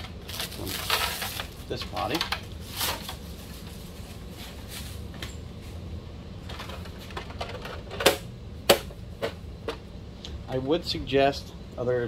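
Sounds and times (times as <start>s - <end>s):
plastic film crinkling: 0.0s - 5.0s.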